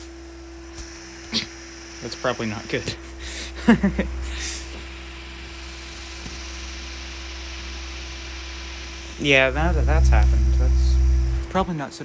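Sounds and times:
fan blade air rush: 1.9 - 11.8
electric motor humming: 4.0 - 11.8.

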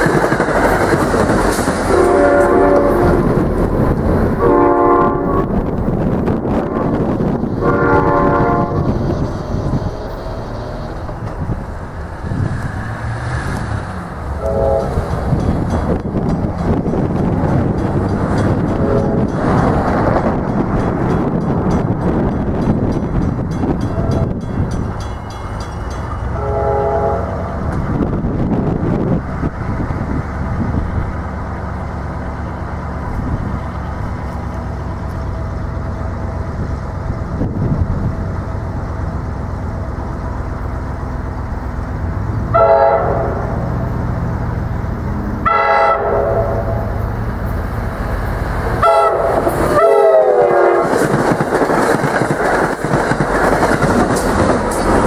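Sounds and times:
train wheels clattering: 0.0 - 4.4, 8.8 - 26.4, 46.8 - 55.0
wind on microphone: 0.0 - 25.2, 26.5 - 34.8, 36.3 - 39.2, 46.5 - 55.0
train horn blasts: 1.9 - 3.4, 4.4 - 5.6, 7.6 - 10.3, 14.3 - 15.2, 18.7 - 19.4, 26.2 - 27.7, 42.4 - 43.9, 45.4 - 47.1, 48.8 - 51.0.

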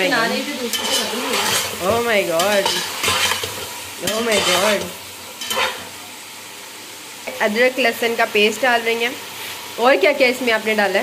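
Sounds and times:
food sizzling in hot oil: 0.0 - 11.0
spatula stirring in a pot: 0.4 - 6.1.

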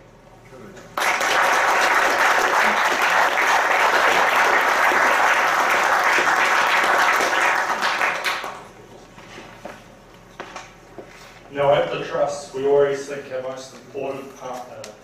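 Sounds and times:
audience applauding: 1.0 - 8.7.

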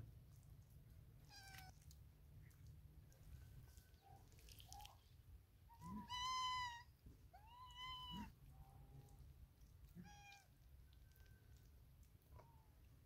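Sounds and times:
cat meowing: 1.2 - 1.8, 5.7 - 8.4, 9.9 - 10.5.

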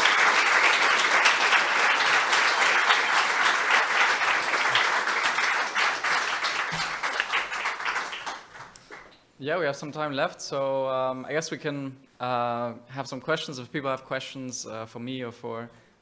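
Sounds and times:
audience applauding: 0.0 - 9.1.

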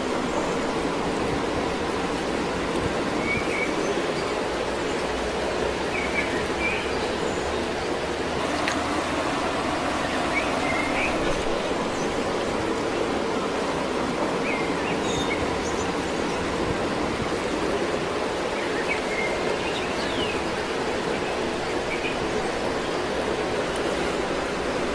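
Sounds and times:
rushing stream water: 0.0 - 24.9.

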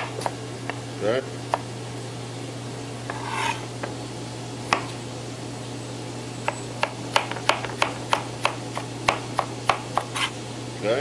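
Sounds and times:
knife chopping on cutting board: 0.0 - 0.8, 3.1 - 4.0, 4.7 - 5.0, 6.8 - 10.4
steady low hum: 0.0 - 11.0
knife scraping board: 3.0 - 3.8, 10.0 - 10.4.

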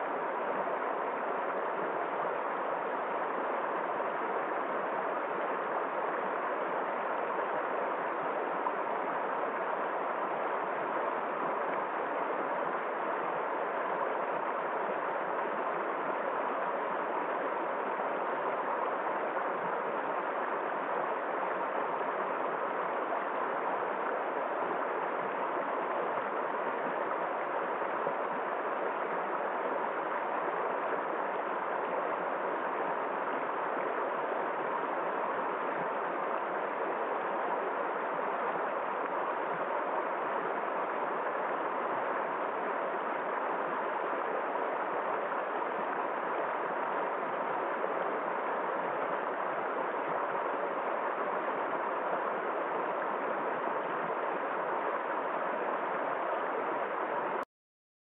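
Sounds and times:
river rushing over stones: 0.0 - 57.4.

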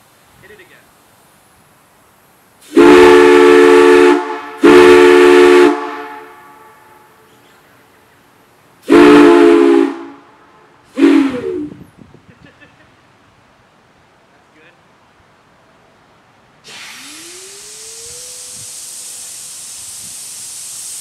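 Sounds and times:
chime whistle blasts: 16.9 - 19.6.

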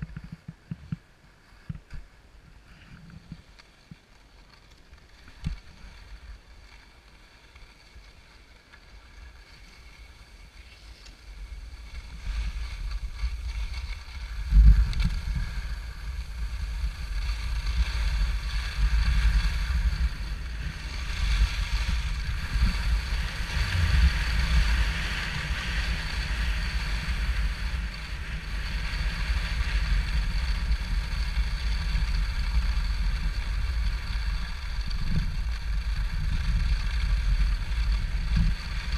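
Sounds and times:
skis hissing over snow: 2.5 - 38.9
wind buffeting microphone: 11.2 - 38.9.

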